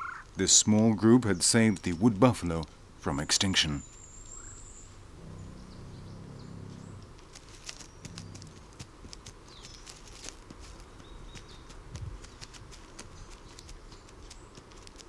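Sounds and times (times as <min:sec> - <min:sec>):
faint bird chirps: 0:03.1 - 0:08.7
grass being cropped and trodden: 0:05.0 - 0:15.0
bison grunting: 0:05.1 - 0:07.2, 0:08.0 - 0:08.8.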